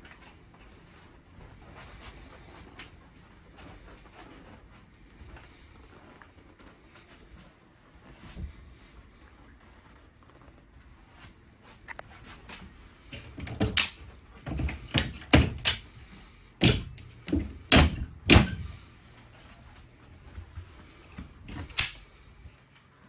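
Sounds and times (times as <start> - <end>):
cabinet doors knocking and clunking: 14.5 - 15.7, 16.6 - 18.7.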